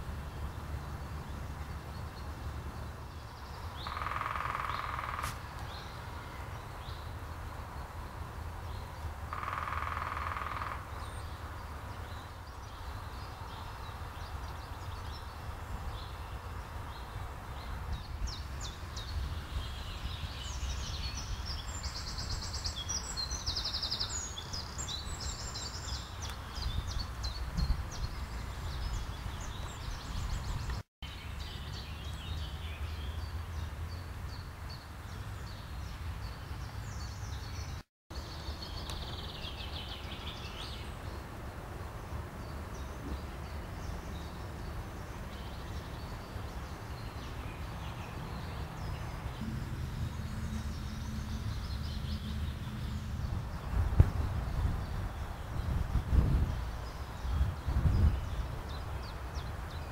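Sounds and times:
songbirds singing: 0:00.0 - 0:59.9
steady low rumble: 0:49.4 - 0:56.5.

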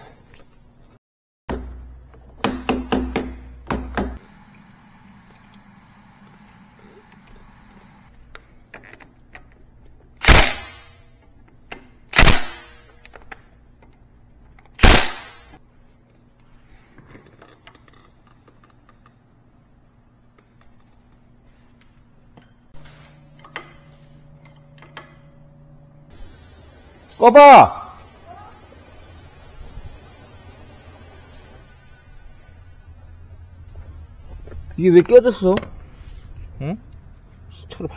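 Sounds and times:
impact wrench hammering: 0:02.4 - 0:04.2.

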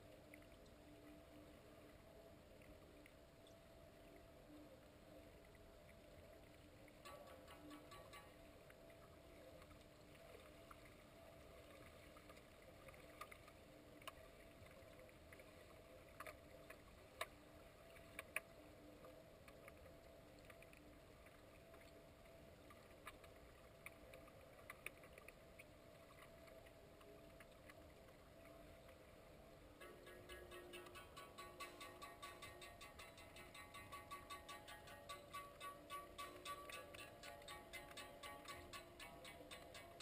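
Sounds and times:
low underwater hum: 0:00.0 - 0:40.0
sharp clicks and knocks: 0:07.1 - 0:08.4, 0:29.8 - 0:40.0.

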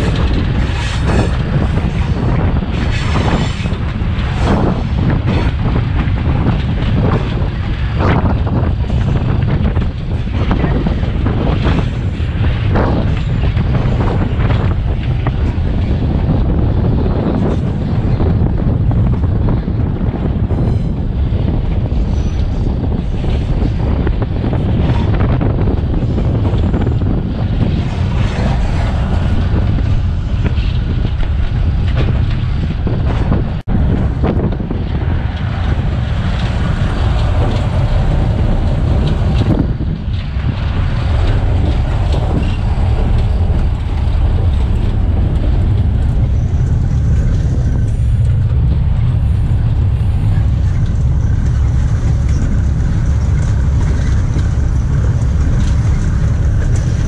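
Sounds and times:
locomotive engine rumble: 0:00.0 - 0:57.0
wind buffeting microphone: 0:00.0 - 0:57.0.

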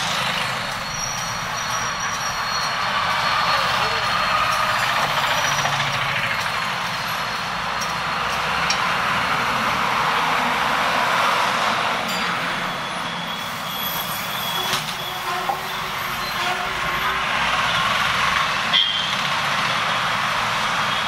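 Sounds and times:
auto-rickshaw engines: 0:00.0 - 0:21.0
busy road traffic: 0:00.0 - 0:21.0
diesel bus engine running: 0:00.0 - 0:21.0.

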